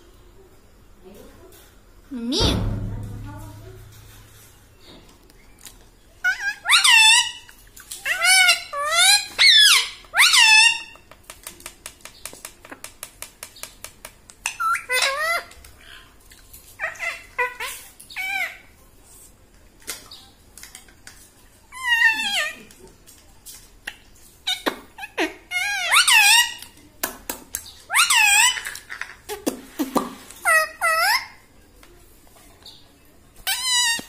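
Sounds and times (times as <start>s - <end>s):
parakeet squeaky calls: 6.2s - 10.9s, 24.5s - 26.6s, 27.9s - 28.7s, 33.5s - 34.0s.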